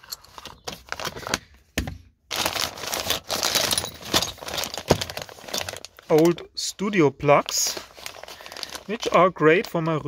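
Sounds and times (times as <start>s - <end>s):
plastic bag crinkling: 2.3s - 10.0s.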